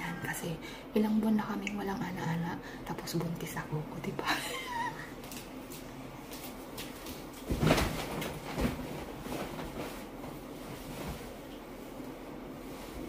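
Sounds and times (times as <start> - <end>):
bedding rustling: 5.2 - 13.0
body thumping onto bed: 7.4 - 11.4.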